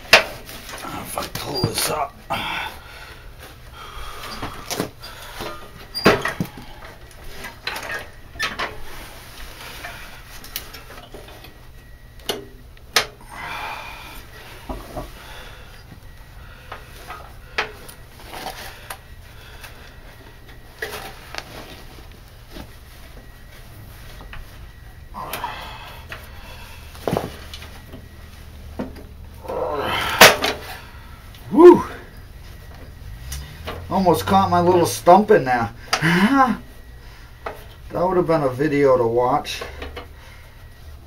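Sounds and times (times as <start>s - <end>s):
rustling: 14.2s - 35.1s.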